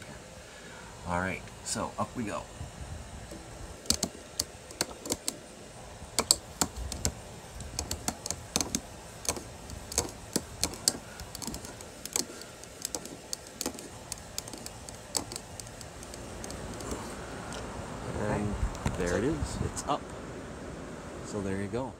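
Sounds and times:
hand crank clicking: 3.3s - 5.4s, 6.2s - 17.1s.

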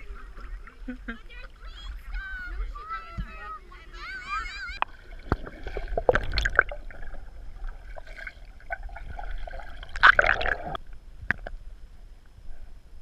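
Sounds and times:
underwater splashing and bubbling: 4.6s - 11.6s.

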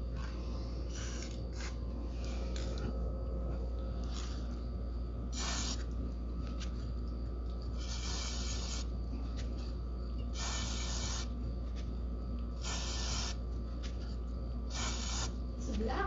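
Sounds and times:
aerosol spray hissing: 5.3s - 5.8s, 7.8s - 8.9s, 10.4s - 11.3s, 12.6s - 13.4s, 14.7s - 15.3s.

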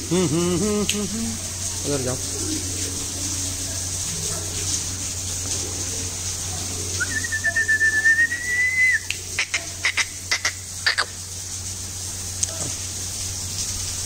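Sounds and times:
low hum and hiss: 0.0s - 14.0s
person whistling a note: 7.0s - 9.0s.

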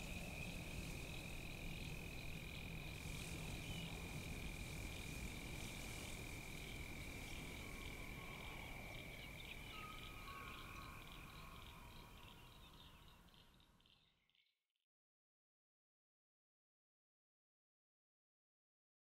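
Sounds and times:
faint chirps: 0.0s - 14.6s.

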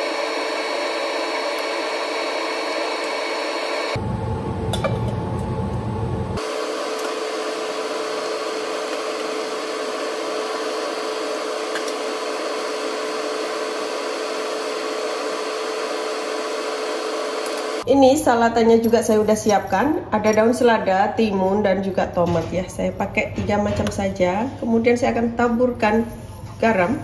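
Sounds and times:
low rumble: 4.0s - 6.4s.

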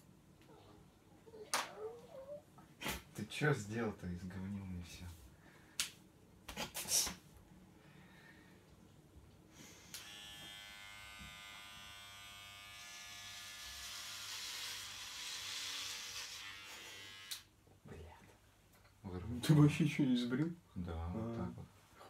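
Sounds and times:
electric hair clipper buzzing: 9.8s - 17.5s.

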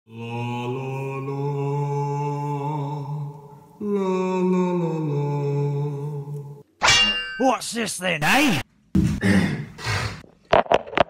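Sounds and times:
low voice chanting: 0.1s - 6.6s.

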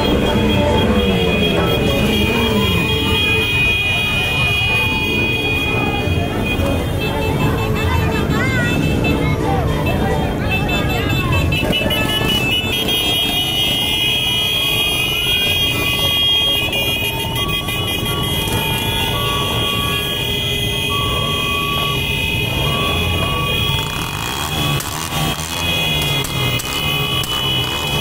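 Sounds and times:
horn and siren tones: 0.0s - 28.0s
motorcycle engines running: 0.0s - 28.0s.

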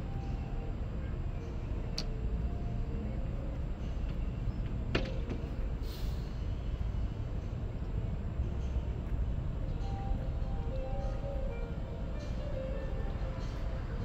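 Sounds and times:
distant traffic rumble: 0.0s - 14.0s
brief hiss: 5.8s - 6.4s.

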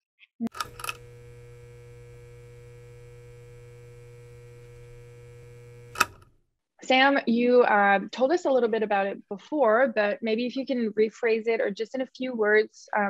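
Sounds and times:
steady mains hum: 0.6s - 6.2s
neon sign crackling clicks: 0.6s - 6.3s.

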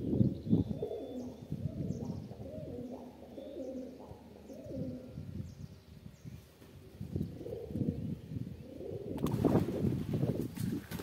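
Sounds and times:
pigeons cooing: 0.0s - 5.4s, 7.2s - 9.9s.

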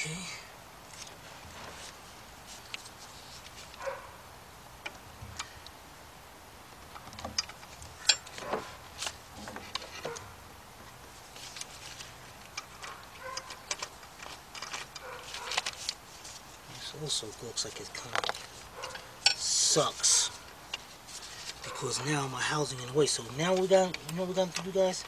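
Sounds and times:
socket clinking against engine parts: 6.9s - 8.7s, 18.1s - 19.5s.

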